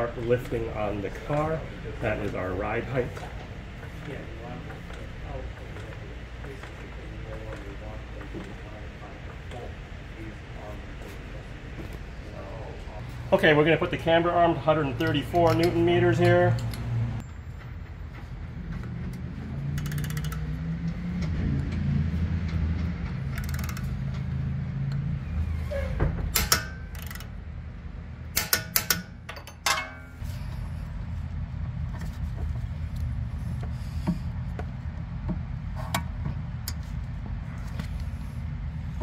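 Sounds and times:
steady low hum: 0.0s - 39.0s
torque wrench clicks: 19.7s - 20.5s, 23.3s - 24.0s, 26.4s - 27.3s.

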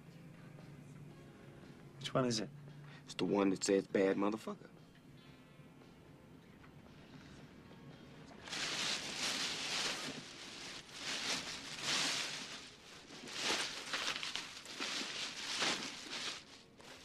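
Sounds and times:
hand rummaging through bag: 8.4s - 17.0s.

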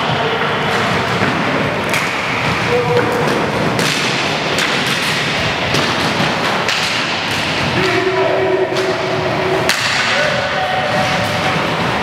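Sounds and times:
sticks and puck knocking: 0.8s - 8.0s
skate wheels rolling: 10.2s - 12.0s.

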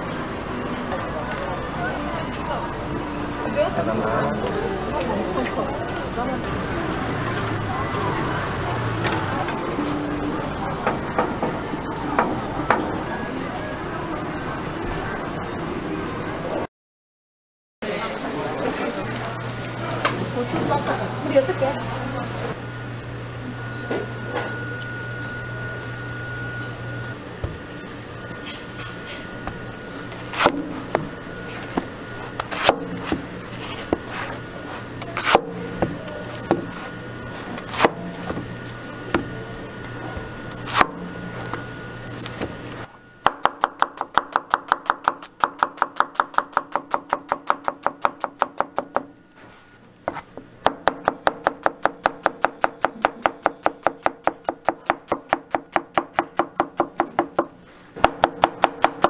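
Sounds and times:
steady hum: 18.3s - 59.0s.

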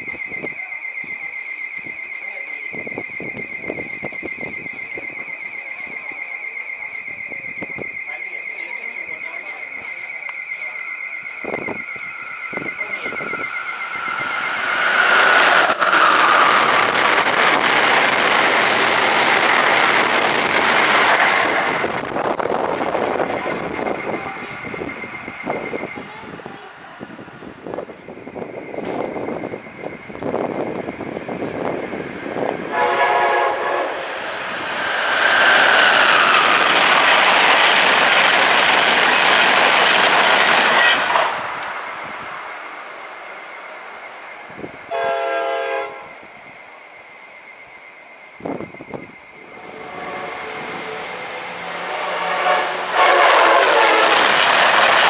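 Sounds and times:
train passing at speed: 0.0s - 55.0s
wheels rushing on rail: 0.0s - 55.0s
faint voices talking: 0.4s - 11.0s, 23.2s - 27.4s.

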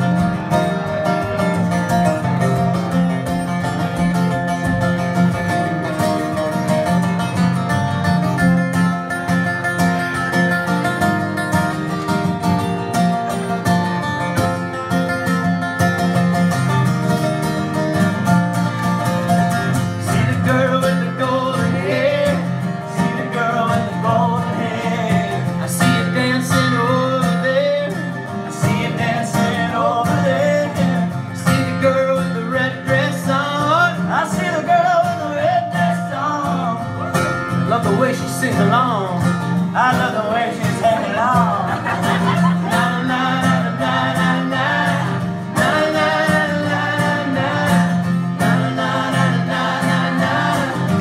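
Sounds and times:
acoustic guitars strumming: 0.0s - 51.0s
man singing: 19.7s - 51.0s.

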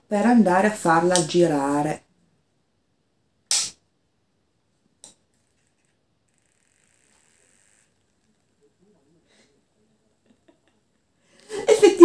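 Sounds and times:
small motor whirring: 5.5s - 8.5s.

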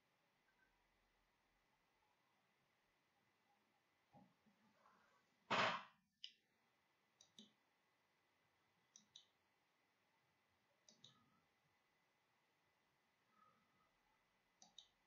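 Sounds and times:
computer mouse clicks: 7.2s - 7.6s, 8.9s - 9.4s, 10.8s - 11.3s, 14.6s - 15.0s.

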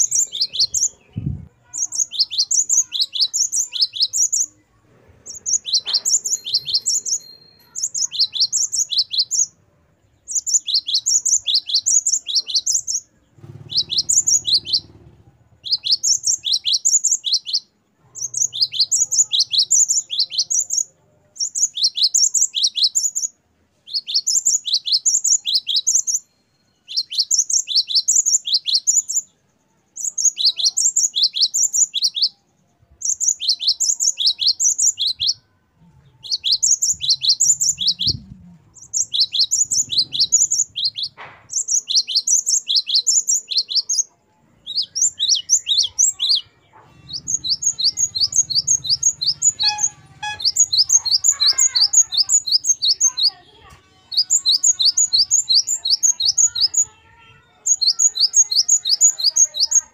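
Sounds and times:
bird singing high quick notes: 5.3s - 9.6s, 10.3s - 14.9s, 15.6s - 20.8s, 36.2s - 44.0s, 44.6s - 53.4s.

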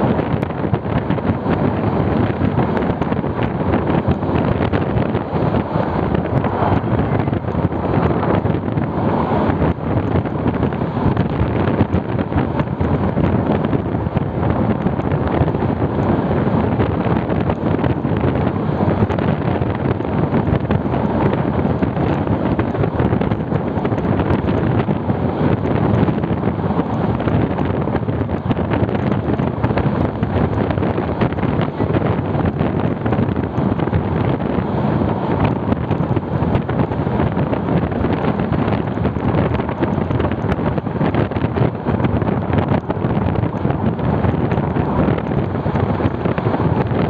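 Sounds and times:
train rumbling on track: 0.0s - 47.0s
wind buffeting microphone: 0.0s - 47.0s.

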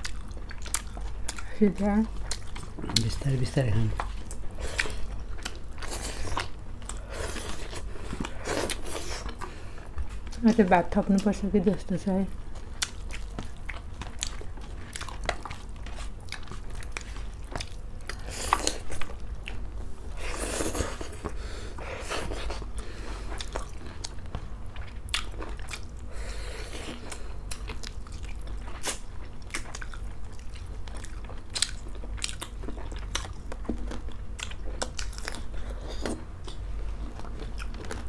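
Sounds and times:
people chewing and biting: 0.0s - 10.4s, 12.5s - 38.0s.

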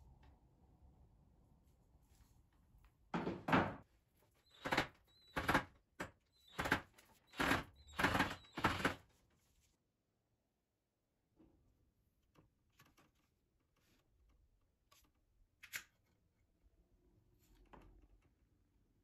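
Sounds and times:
cordless drill bursts: 6.4s - 9.0s
drill bit grinding in screw: 7.3s - 8.9s.

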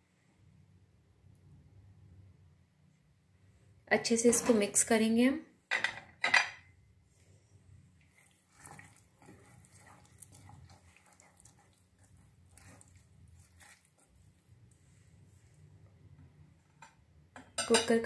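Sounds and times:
metal ladle stirring wet vegetables: 8.0s - 14.5s.

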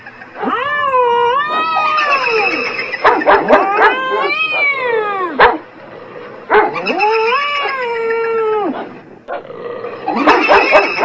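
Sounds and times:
wavering animal wails: 0.4s - 5.4s, 6.2s - 9.0s
dog barking: 3.0s - 4.7s, 5.4s - 5.6s, 6.5s - 6.9s, 10.1s - 11.0s.

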